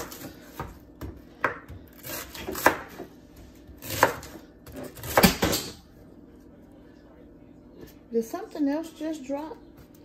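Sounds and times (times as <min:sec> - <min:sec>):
knife chopping cabbage: 0:00.0 - 0:05.7.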